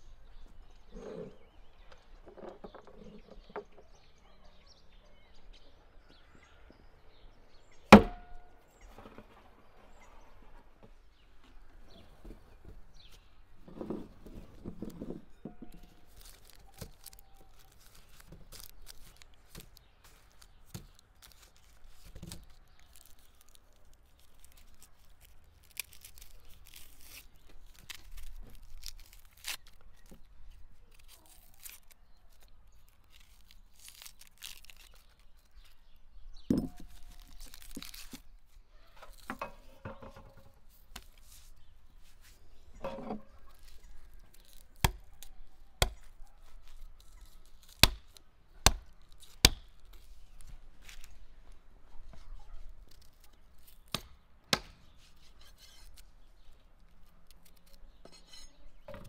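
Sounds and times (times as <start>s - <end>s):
onion skins tearing and crackling: 15.7s - 39.8s, 40.6s - 41.7s, 43.4s - 58.0s
knife scraping: 55.0s - 56.1s, 57.6s - 58.8s.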